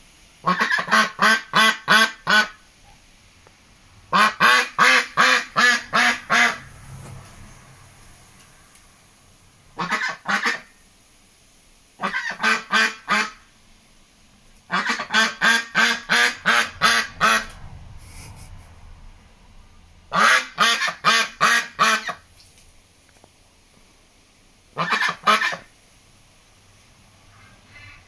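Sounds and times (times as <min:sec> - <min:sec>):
duck quacking: 0:00.4 - 0:02.6, 0:04.1 - 0:06.6, 0:09.8 - 0:10.7, 0:12.0 - 0:13.5, 0:14.7 - 0:17.6, 0:20.1 - 0:22.2, 0:24.8 - 0:25.7.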